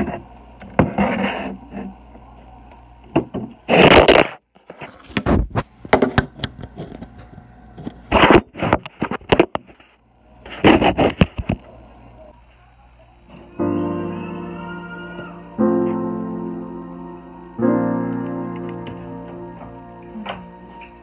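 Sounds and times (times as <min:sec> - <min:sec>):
piano music: 0:13.3 - 0:21.0.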